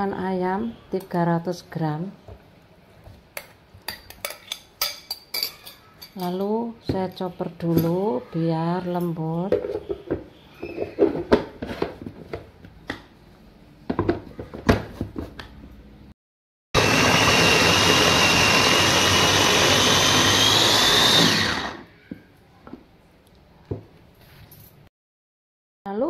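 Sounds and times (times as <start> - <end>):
food chopper whine: 16.8 - 21.9.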